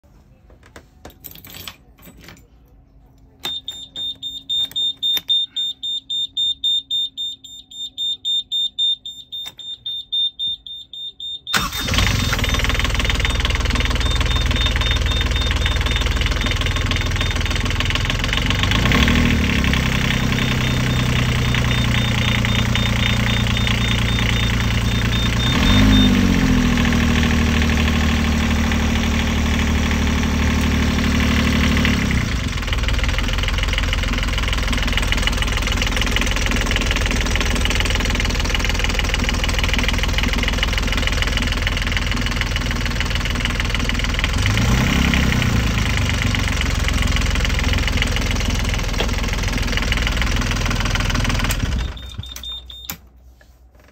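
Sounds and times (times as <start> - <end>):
marine engine idling and revving: 11.7 - 52.1.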